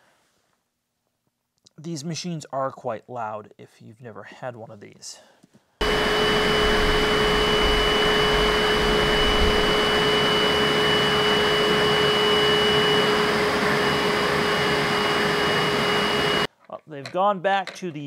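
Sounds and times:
spot cleaner suction motor whining: 5.8s - 16.5s.

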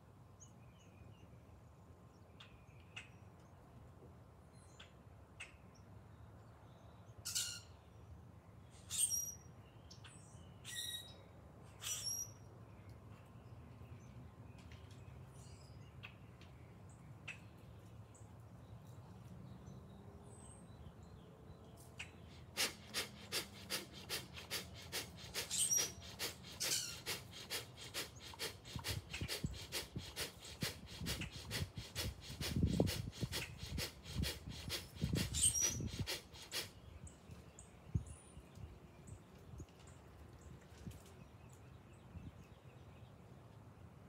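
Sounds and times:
sharp rapid nasal breathing: 22.3s - 36.8s.

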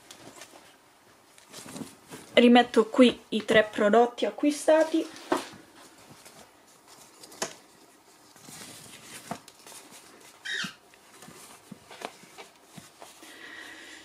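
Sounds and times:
fabric rustling: 0.0s - 2.5s, 4.7s - 13.4s
high-pitched squeak: 10.4s - 10.8s.

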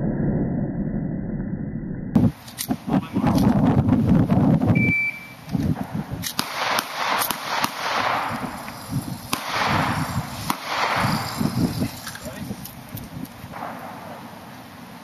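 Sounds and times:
pistol shots hitting steel targets: 5.8s - 12.0s, 13.5s - 14.3s.

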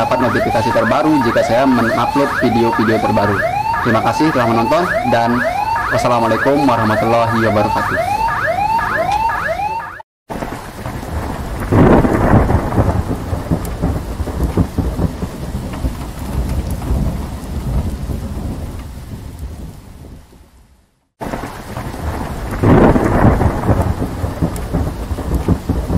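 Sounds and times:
rolling thunder: 0.0s - 9.7s, 10.3s - 20.5s, 21.2s - 25.9s
electronic siren yelp: 0.0s - 10.0s
rain: 0.0s - 25.9s.

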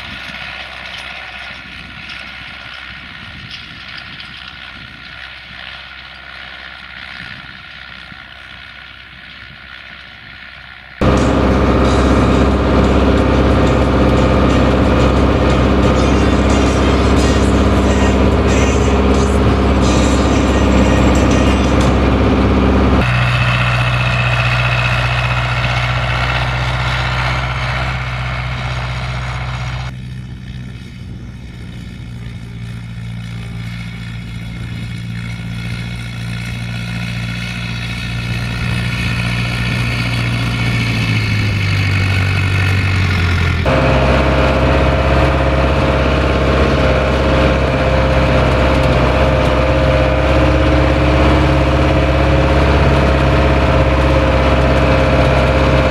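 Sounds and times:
tractor diesel engine running: 0.0s - 55.9s.

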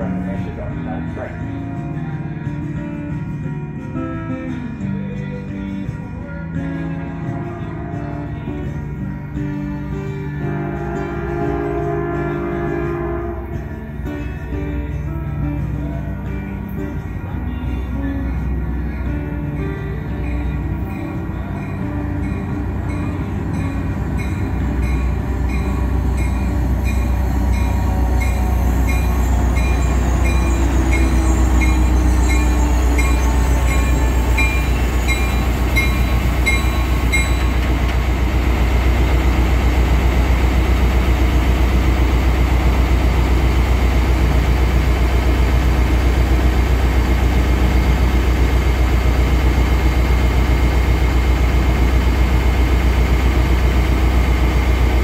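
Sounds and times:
diesel locomotive engine rumbling: 0.0s - 55.0s
bell ringing: 20.4s - 37.9s.

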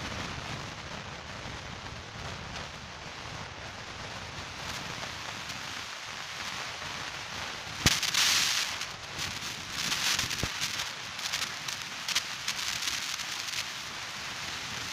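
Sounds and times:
airliner cabin air hiss: 7.6s - 14.9s.

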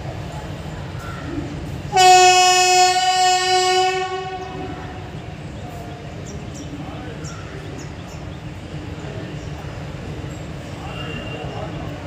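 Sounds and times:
train horn blast: 1.9s - 5.2s.

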